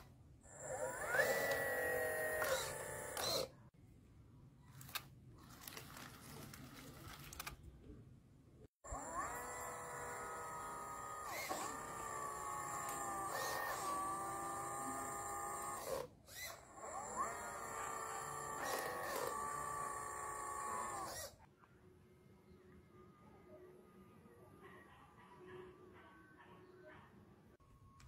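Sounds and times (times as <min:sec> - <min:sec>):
electric motor and pump whining: 0:00.0 - 0:03.7, 0:08.8 - 0:21.4.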